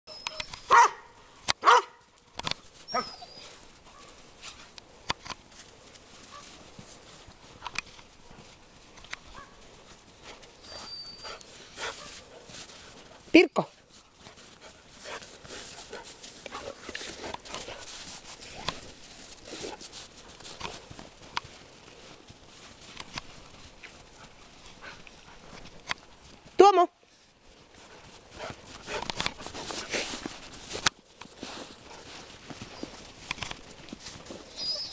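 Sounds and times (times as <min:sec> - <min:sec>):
paws crunching in snow: 0:00.4 - 0:34.9
dog barking: 0:00.7 - 0:02.0.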